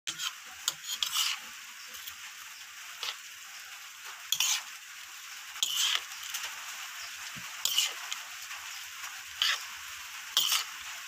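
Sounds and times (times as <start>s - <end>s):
metal spoon scraping a plate: 0.1s - 2.2s, 3.0s - 3.2s, 4.3s - 4.7s, 5.6s - 6.4s, 7.0s - 8.2s, 9.4s - 9.7s, 10.3s - 10.8s.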